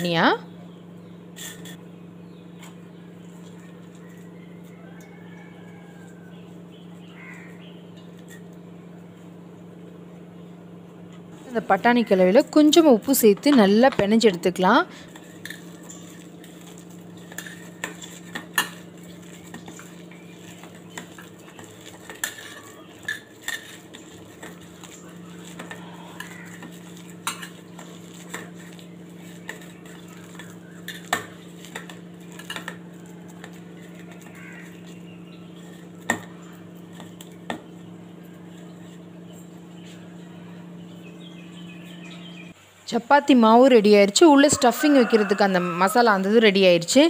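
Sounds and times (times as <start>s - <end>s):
steady low hum: 0.0s - 47.0s
hand kneading paste in a bowl: 15.1s - 40.2s.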